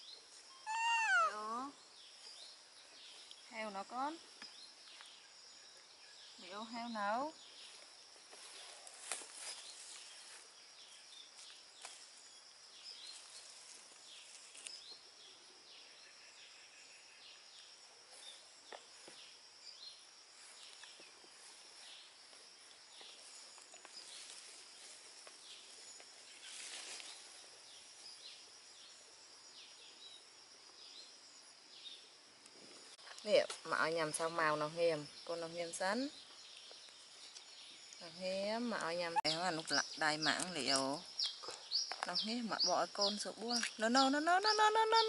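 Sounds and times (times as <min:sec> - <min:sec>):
high insect drone: 0:00.0 - 0:45.0
leaves rustling and ticking: 0:06.4 - 0:15.2, 0:20.2 - 0:28.6, 0:32.4 - 0:45.0.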